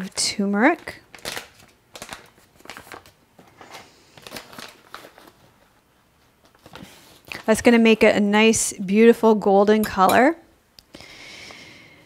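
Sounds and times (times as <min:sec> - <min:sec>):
packet crackling and rustling: 0:00.6 - 0:07.7.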